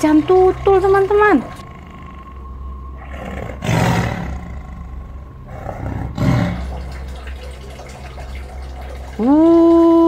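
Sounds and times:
big cat roaring: 0.7 - 7.1.

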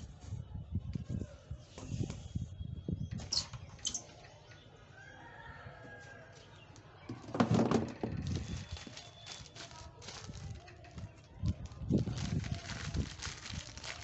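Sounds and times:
rustling plastic bags: 7.5 - 14.0.

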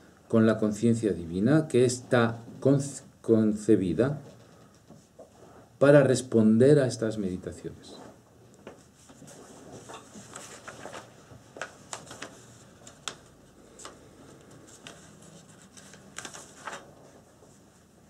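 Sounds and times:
paper rustling: 8.6 - 18.0.

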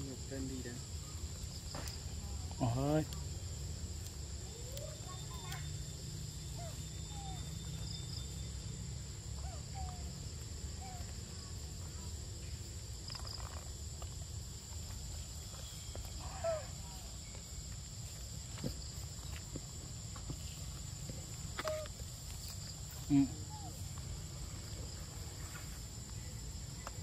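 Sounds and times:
high-pitched insect drone: 0.0 - 27.0
short squeaky calls: 21.5 - 23.8.

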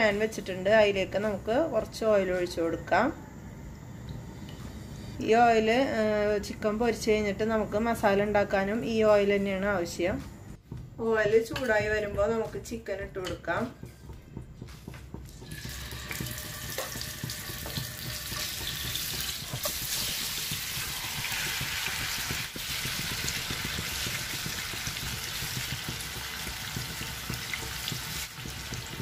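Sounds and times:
chicken sizzling in hot oil: 15.4 - 29.0.

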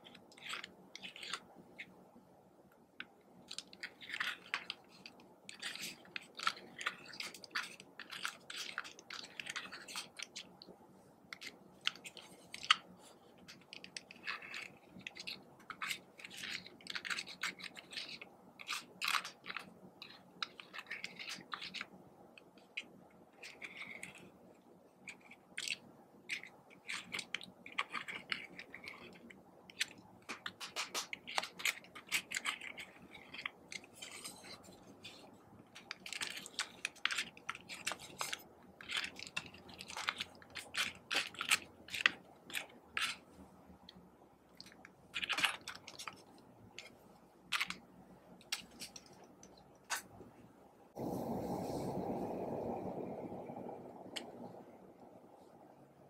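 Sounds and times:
spatula scraping eyeshadow: 3.5 - 10.6, 11.3 - 24.4.

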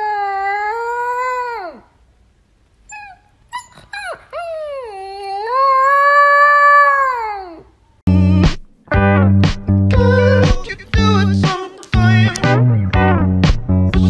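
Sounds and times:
puppy howling: 0.0 - 1.9, 2.9 - 7.7
puppy yipping: 2.9 - 7.4
loud music with heavy beat: 8.1 - 14.0.

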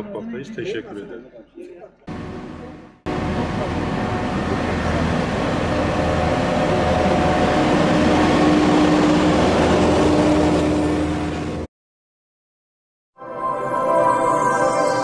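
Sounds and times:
road roller diesel engine: 2.1 - 11.7.

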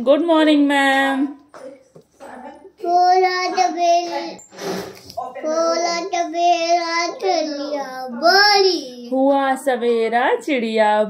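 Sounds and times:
child singing: 5.5 - 9.1.

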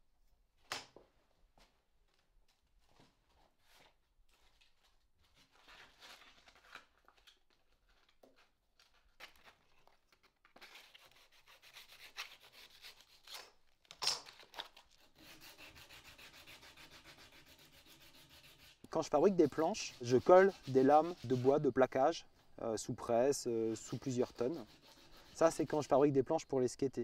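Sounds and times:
sandpaper rubbing on wood: 15.1 - 22.0, 23.4 - 26.0.

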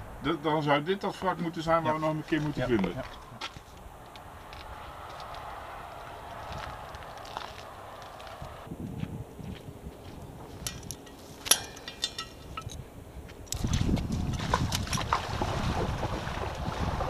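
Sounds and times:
wind buffeting microphone: 1.7 - 17.0
metal gear clinking: 10.6 - 12.8
water splashing: 13.5 - 17.0.

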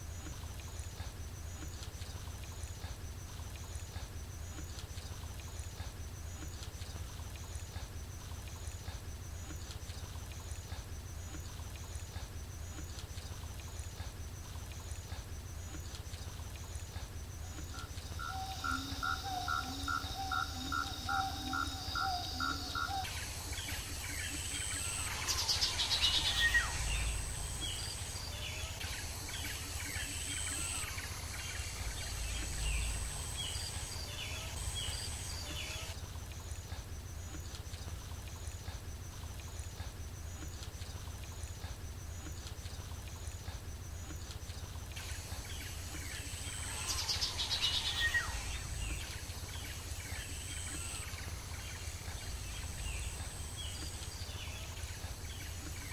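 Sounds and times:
steady low rumble: 26.4 - 28.4, 31.4 - 35.1.

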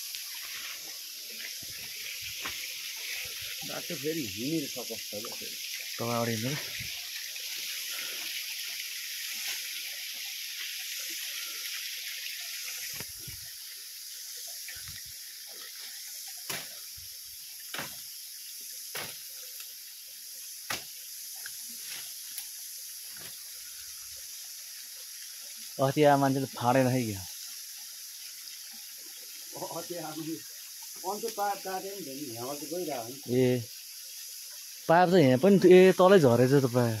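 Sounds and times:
footsteps through undergrowth: 0.0 - 3.6
flowing water hiss: 0.0 - 37.0
twigs snapping: 16.5 - 16.8.

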